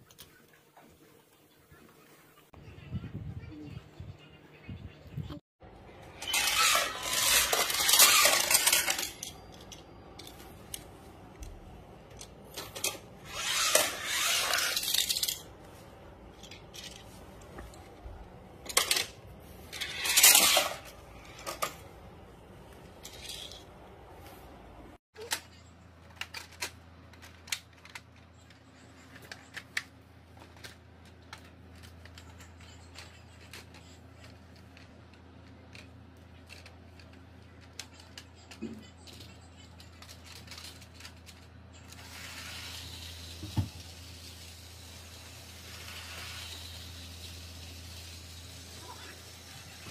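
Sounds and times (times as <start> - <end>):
toy cars rattling on plastic track: 6.1 - 10.9, 12.1 - 15.5, 18.6 - 21.8, 23.0 - 23.7, 25.2 - 49.9
plastic track pieces clicking: 6.2 - 10.9, 12.1 - 15.4, 18.7 - 21.8, 26.1 - 48.6.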